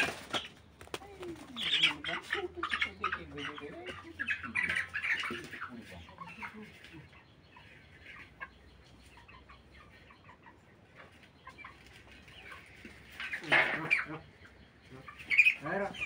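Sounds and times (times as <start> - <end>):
chickens clucking softly: 0.0 - 16.0.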